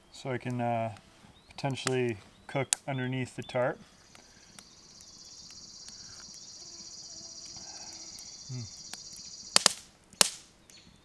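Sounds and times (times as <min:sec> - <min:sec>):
insect trilling: 0:04.3 - 0:09.7
sharp loud cracks: 0:09.6 - 0:10.5.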